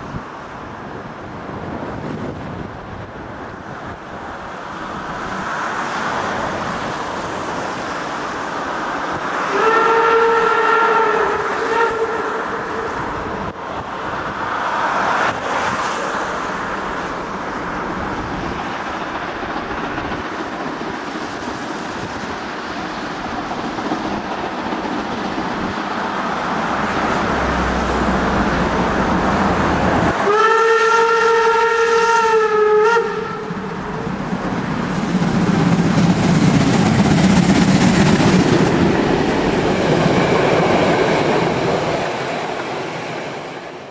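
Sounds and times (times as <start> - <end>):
steam whistle blast: 9.5 - 13.1, 30.2 - 33.6.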